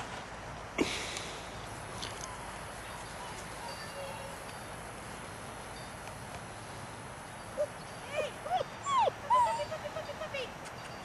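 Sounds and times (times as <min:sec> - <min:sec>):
puppies yelping: 0:07.6 - 0:10.2.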